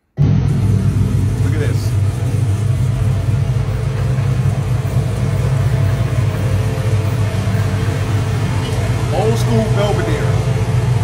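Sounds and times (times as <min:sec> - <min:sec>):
car engine idling: 0:00.2 - 0:11.0.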